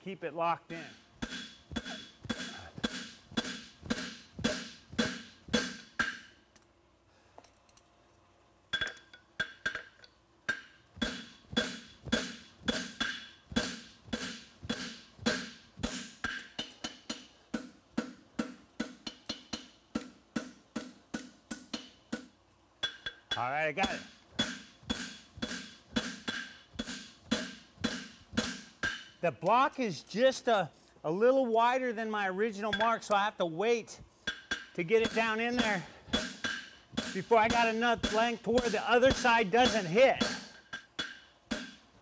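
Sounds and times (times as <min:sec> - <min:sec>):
hammer blows on hot steel: 0:00.7 - 0:06.4, 0:22.8 - 0:29.3, 0:34.2 - 0:41.8.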